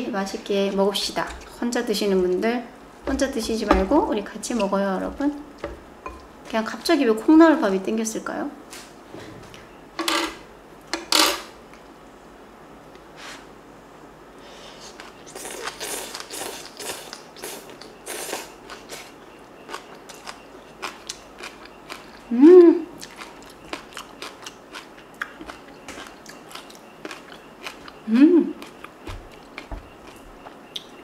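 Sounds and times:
crunchy chewing of rice: 14.7 - 22.3, 22.9 - 31.0
person humming: 22.3 - 22.9, 28.1 - 28.6.

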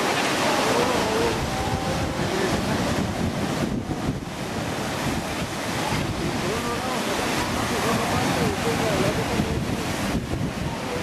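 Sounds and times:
surf washing against rocks: 0.0 - 11.0
wind buffeting microphone: 0.0 - 11.0.

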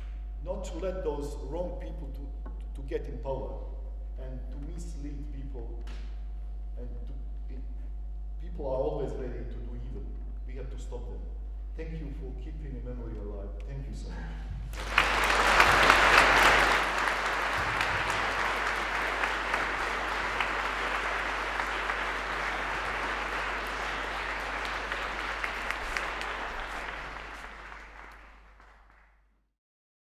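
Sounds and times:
audience applauding: 14.7 - 29.2.

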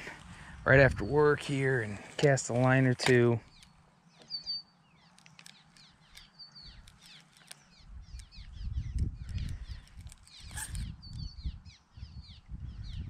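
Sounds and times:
wild birds chirping: 1.8 - 13.0
sharp click: 3.0 - 4.4.

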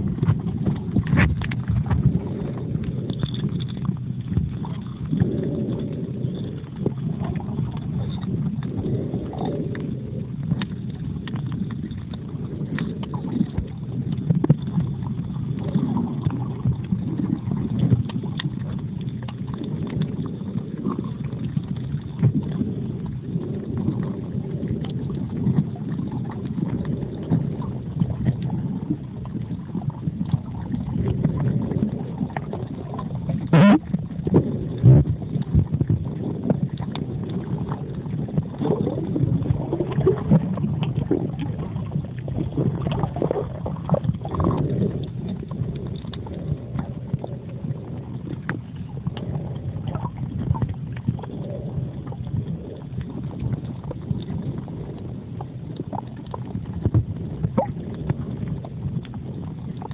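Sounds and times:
muffled underwater rumble: 0.0 - 59.9
small clicks and crackles: 0.0 - 59.9.

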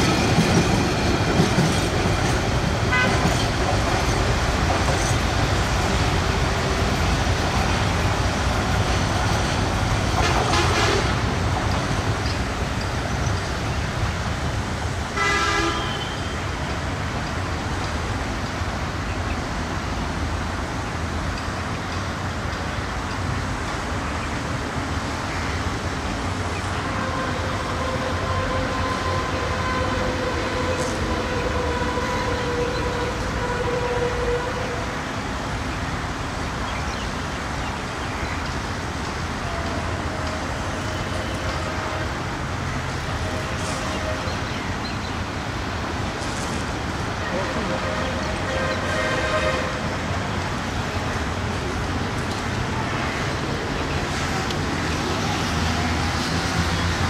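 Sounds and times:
freight train wagons rumbling: 0.0 - 57.0
train horn blast: 2.9 - 3.4, 10.2 - 11.4, 15.2 - 16.5, 26.8 - 35.0, 47.4 - 50.0.

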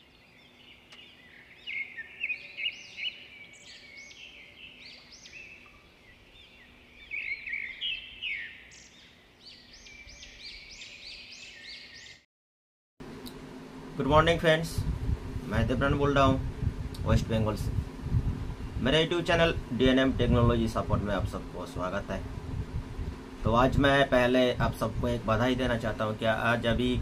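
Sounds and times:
high bird-like chirps: 0.0 - 12.2.

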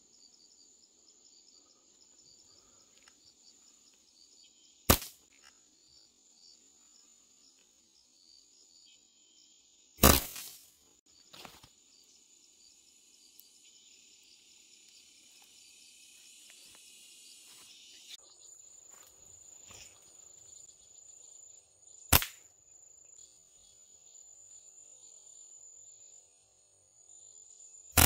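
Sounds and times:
forest insects buzzing and chirping: 0.0 - 28.0
slingshot bands snapping: 4.9 - 5.2, 22.1 - 22.4.

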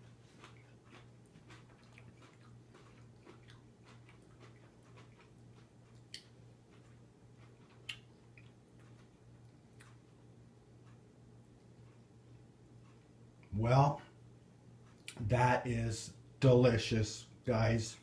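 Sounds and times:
chewing crunchy food: 0.0 - 13.2
steady low hum: 0.0 - 18.0.

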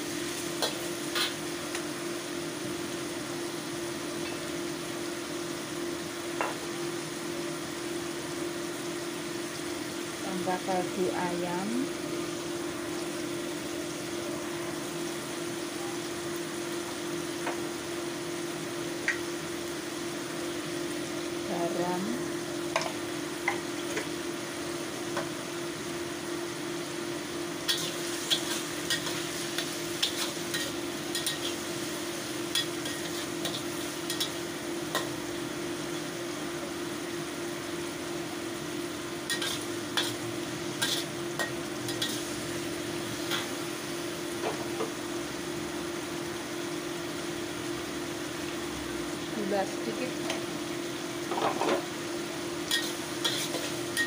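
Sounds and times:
vegetables sizzling: 0.0 - 54.0
metal spatula scraping a wok: 39.3 - 40.2, 40.8 - 41.2, 52.7 - 54.0.

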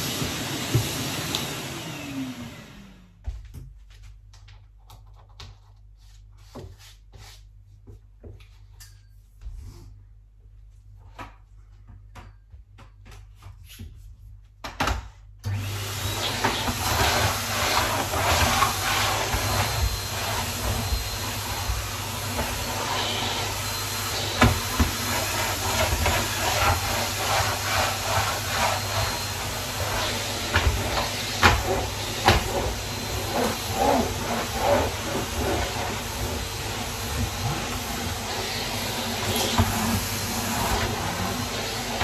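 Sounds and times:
vacuum cleaner running: 0.0 - 3.4, 15.4 - 42.0.

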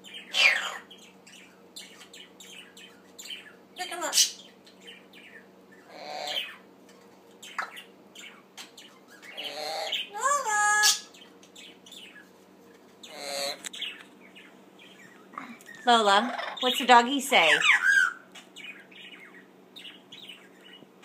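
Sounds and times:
faint steady hum: 0.0 - 21.0
parrot chattering: 0.1 - 4.6, 5.2 - 6.7, 7.4 - 12.2, 13.0 - 20.8.

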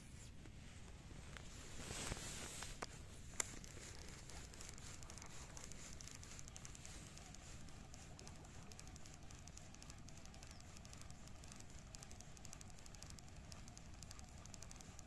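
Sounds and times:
rapid high ticking: 3.3 - 15.0.

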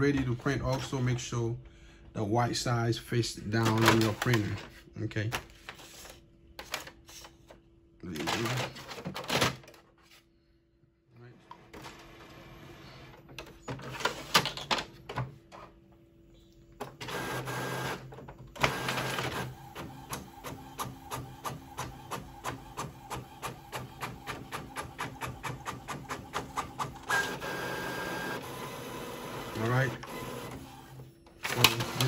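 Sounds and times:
printer mechanical whirring: 3.6 - 4.6, 16.8 - 32.0
printer regular clatter: 3.6 - 5.8, 6.6 - 7.4, 8.1 - 9.9, 16.8 - 32.0
printer sheet feed whirr: 11.5 - 15.1, 16.8 - 32.0
printer clicks: 31.4 - 32.0.

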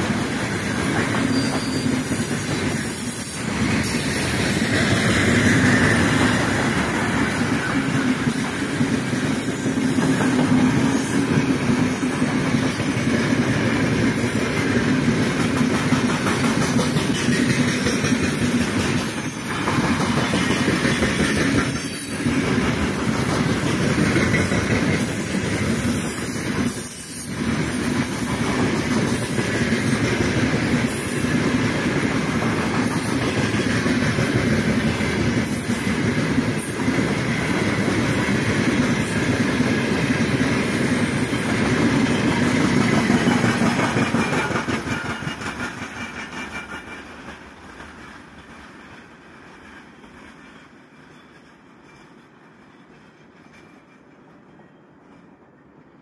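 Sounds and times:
freight train wheels clattering: 0.0 - 55.3.

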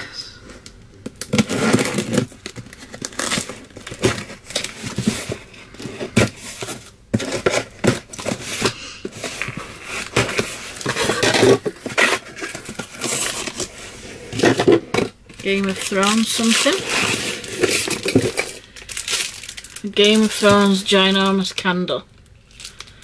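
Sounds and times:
cardboard box being torn open: 1.2 - 5.4
paper crinkling and rustling: 1.2 - 21.5.

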